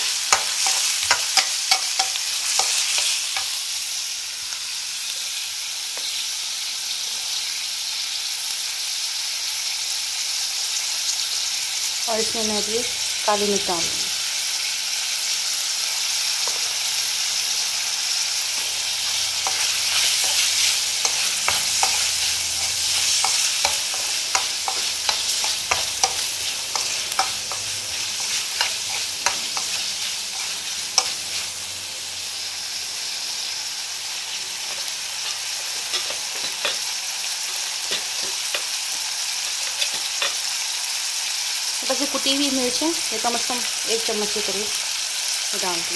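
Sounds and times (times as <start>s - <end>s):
steel spoon scraping a pan: 0.0s - 3.8s, 18.4s - 31.6s, 34.6s - 37.0s, 39.5s - 40.5s
vegetables sizzling in hot oil: 0.0s - 45.9s.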